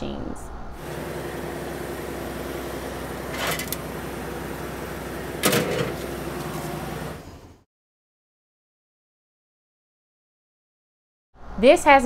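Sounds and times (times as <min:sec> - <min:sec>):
steady mechanical hum: 0:00.0 - 0:07.6.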